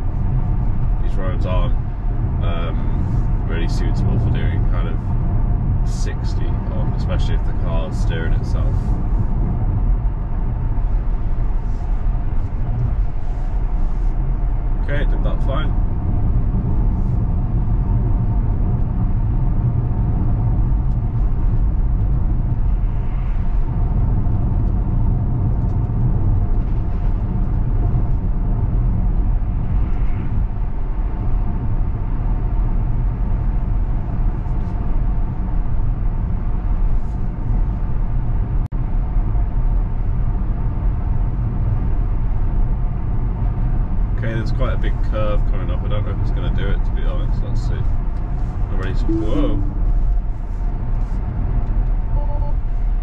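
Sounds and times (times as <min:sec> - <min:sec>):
road and tyre rumble in car cabin: 0:00.0 - 0:53.0
faint steady hum: 0:47.7 - 0:50.7.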